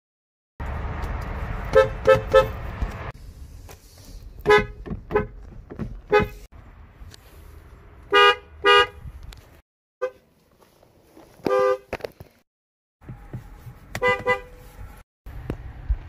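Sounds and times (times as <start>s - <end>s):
car horns honking: 1.7s - 2.8s, 4.4s - 6.5s, 8.1s - 9.1s, 10.0s - 10.2s, 11.4s - 11.9s, 13.1s - 14.8s.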